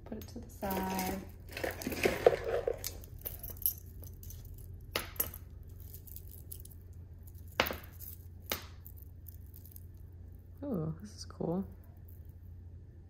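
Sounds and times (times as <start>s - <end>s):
necklace beads clicking: 2.7s - 10.4s.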